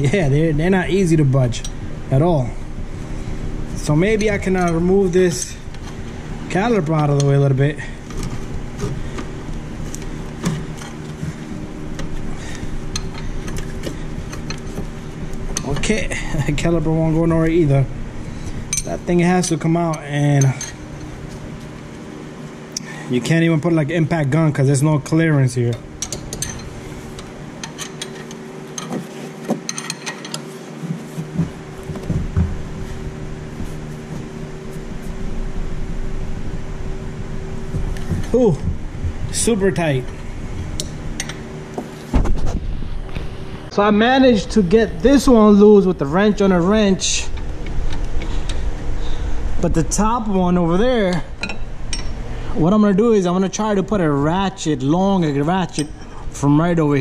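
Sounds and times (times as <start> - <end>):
steady low hum: 0.0 - 57.0
wrench clinking on metal: 29.7 - 30.4.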